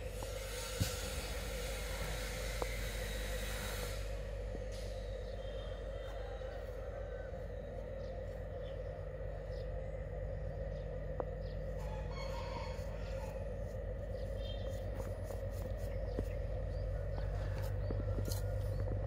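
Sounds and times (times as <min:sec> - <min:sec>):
steady background hum: 0:00.0 - 0:19.0
faint rooster crowing: 0:04.8 - 0:09.6, 0:11.4 - 0:19.0.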